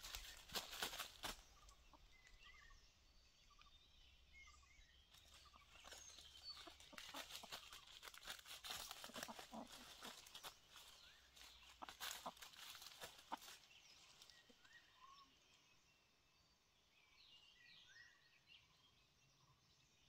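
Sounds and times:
dry leaves crackling and rustling: 0.0 - 1.9, 5.1 - 14.5
small birds chirping: 0.0 - 20.0.

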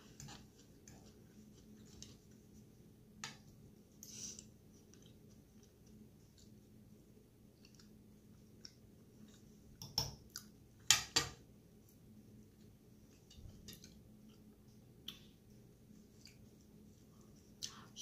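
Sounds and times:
soft chewing: 0.0 - 10.9, 11.7 - 18.0.

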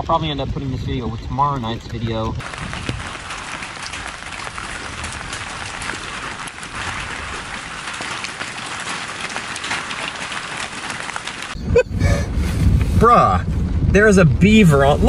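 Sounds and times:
rain on wet ground and leaves: 2.4 - 12.2.

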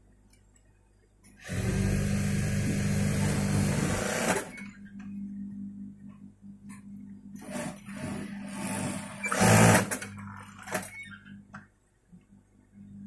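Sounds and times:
sewing machine humming: 1.4 - 4.7, 7.4 - 10.9.

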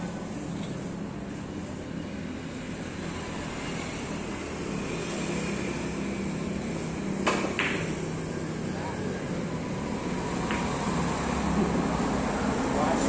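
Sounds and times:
steady background hum: 0.0 - 13.0
billiard balls clicking together: 7.2 - 7.9
cue striking billiard ball: 7.2 - 8.0, 10.4 - 11.9.

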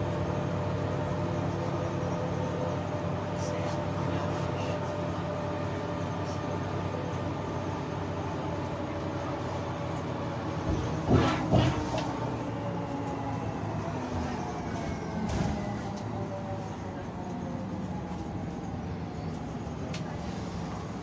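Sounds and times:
tram motor hum: 0.0 - 21.0.

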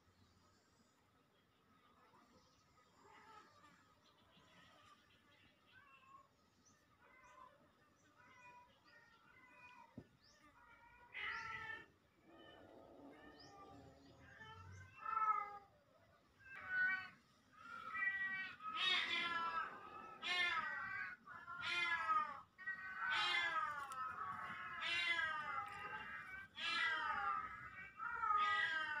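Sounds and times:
cat meowing: 10.7 - 15.7, 16.4 - 29.0.

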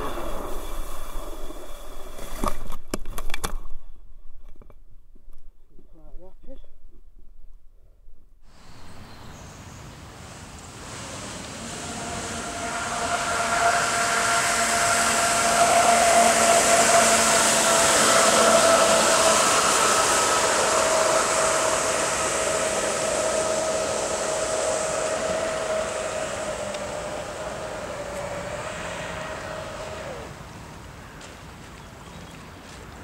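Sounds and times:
water spray hissing: 10.1 - 30.6
electric motor whine: 10.6 - 30.6.

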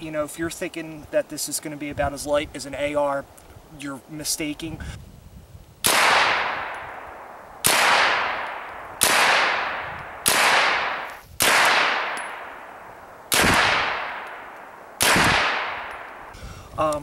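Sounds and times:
gunshots with echo: 5.8 - 12.7, 13.3 - 16.2.

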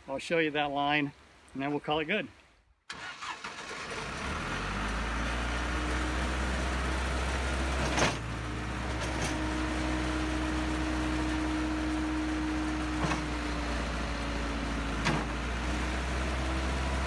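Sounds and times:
diesel engine running: 3.0 - 17.0
hydraulic whine: 6.8 - 17.0.

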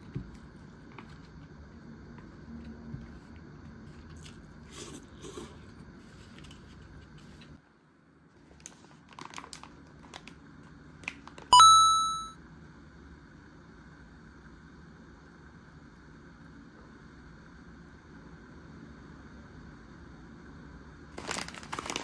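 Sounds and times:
soft rustles and crinkles: 0.0 - 4.6, 5.6 - 7.6, 8.3 - 10.4
bright chime: 11.6 - 12.4.

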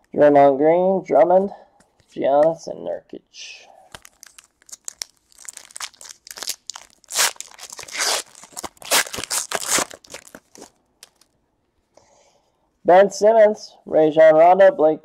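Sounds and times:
foil wrapper tearing and crinkling: 3.9 - 11.3.

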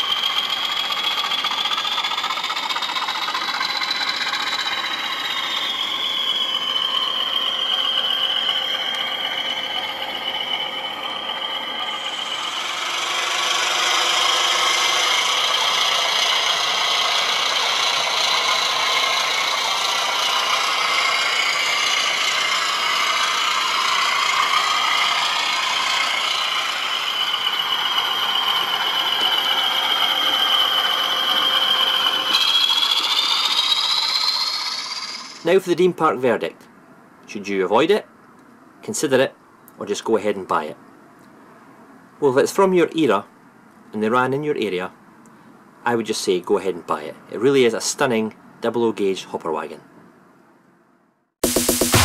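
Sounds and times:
wheels rattling on rails: 0.0 - 35.6
model train motor whine: 0.0 - 35.9.

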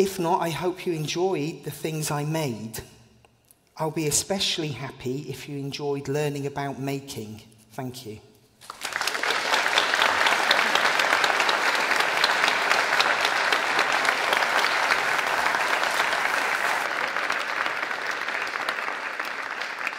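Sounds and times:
audience applauding: 8.6 - 19.9.

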